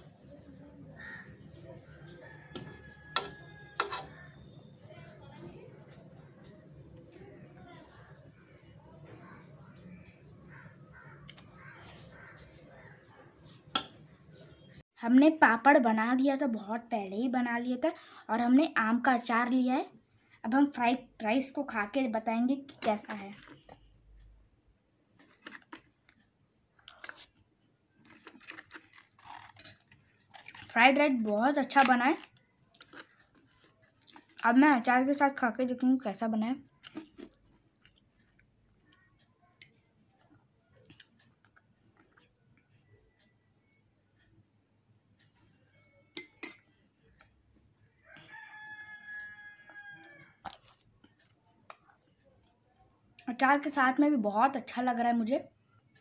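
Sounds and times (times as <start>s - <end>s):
rooster crowing: 2.1s - 4.0s, 48.0s - 50.5s
crunching of fried crisp: 25.2s - 35.1s, 36.7s - 39.0s.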